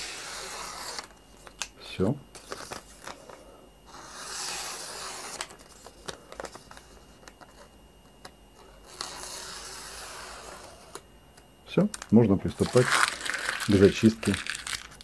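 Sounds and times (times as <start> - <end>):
paper crackling: 12.0 - 15.0.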